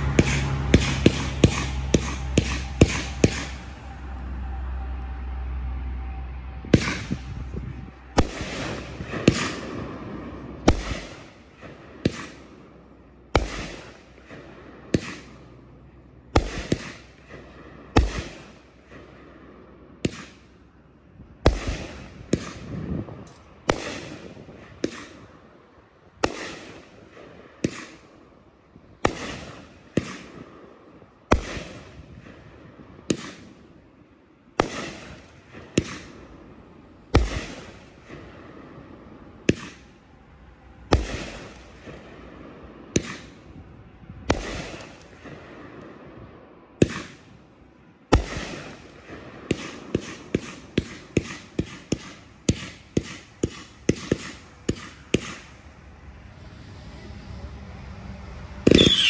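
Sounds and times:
firework cake bangs: 0.0 - 3.6, 37.2 - 38.2.

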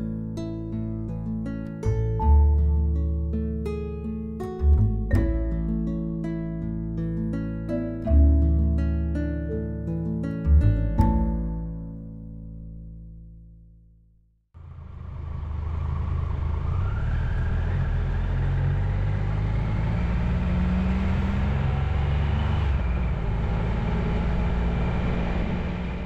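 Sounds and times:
motorcycle engine running: 14.6 - 22.1.

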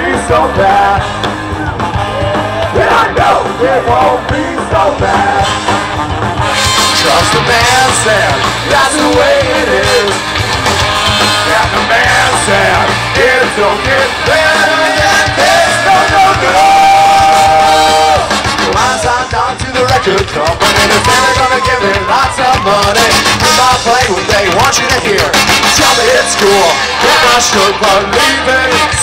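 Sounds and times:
trumpet and trombone: 0.0 - 19.4, 20.1 - 29.0
ska-punk band playing live: 0.0 - 29.0.

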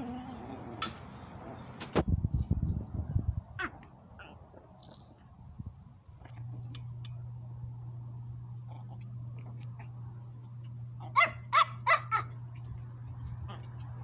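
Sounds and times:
steady low hum: 0.0 - 14.0
dogs mouthing and chewing: 8.7 - 10.8
dog yipping: 11.0 - 12.4.

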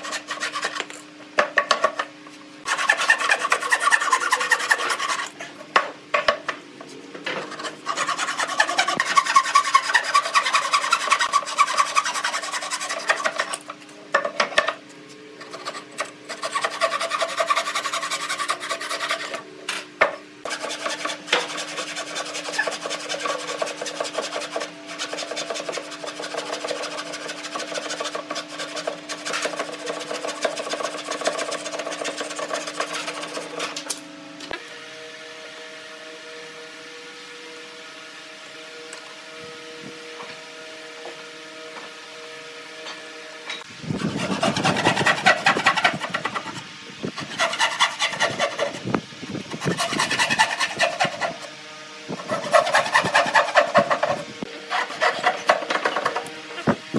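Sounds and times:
hand saw cutting wood: 0.0 - 1.0, 2.6 - 5.5, 7.3 - 13.7, 15.4 - 19.4, 20.4 - 33.8, 43.6 - 51.6, 52.2 - 56.8.

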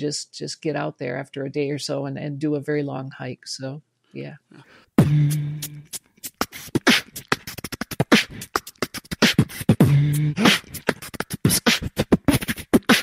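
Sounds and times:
beatbox percussion clicks and hits: 5.0 - 13.0.

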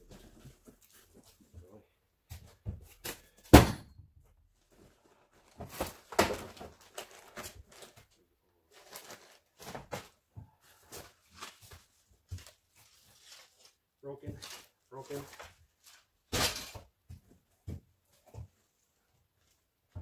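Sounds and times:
plastic rustling: 4.6 - 16.8.

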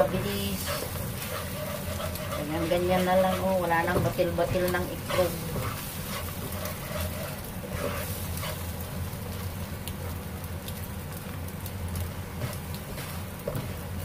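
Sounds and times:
spatula scraping and tapping: 0.0 - 8.7
eggs sizzling in a wok: 0.0 - 14.0
steady low hum: 0.0 - 14.0.

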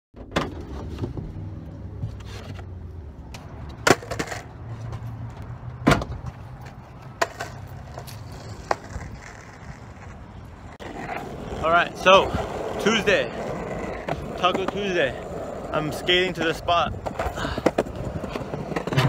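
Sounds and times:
skateboard rolling rumble: 0.2 - 19.0
skateboard wooden clacks: 3.4 - 5.0, 5.8 - 10.2, 16.4 - 19.0.

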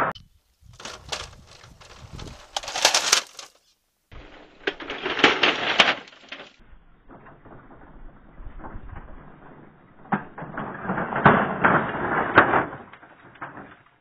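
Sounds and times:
clatter of clicks and knocks: 0.8 - 3.5, 10.0 - 14.0.

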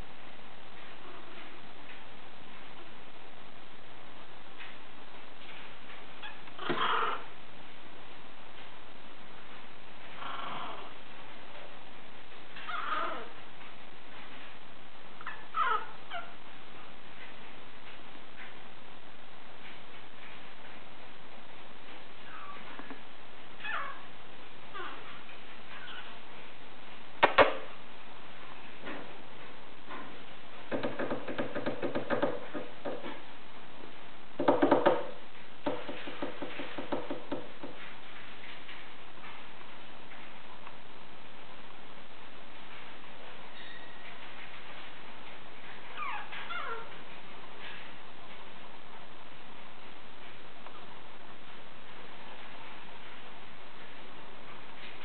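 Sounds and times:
puppy whimpering and crying: 12.6 - 13.4, 15.2 - 16.4, 22.2 - 22.7, 23.6 - 24.0, 25.7 - 26.2, 45.9 - 46.9
puppy claws tapping on floor: 30.7 - 33.2, 34.4 - 38.8.

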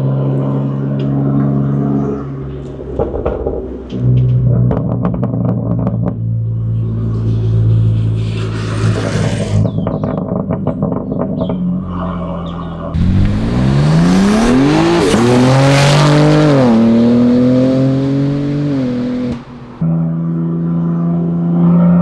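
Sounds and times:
car engine idling and revving: 0.0 - 22.0
exhaust pops: 13.0 - 15.3.

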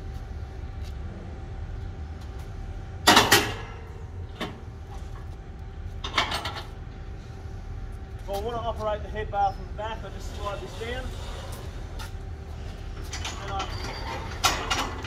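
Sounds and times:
metal gate clanging shut: 3.1 - 3.8, 13.1 - 15.0.

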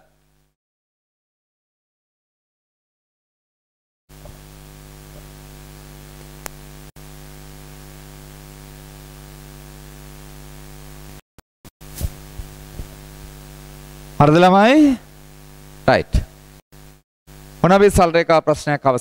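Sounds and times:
electrical mains hum: 4.1 - 11.2, 11.8 - 19.0
microphone hiss: 4.1 - 11.2, 11.8 - 19.0
clicks: 6.2 - 6.6.

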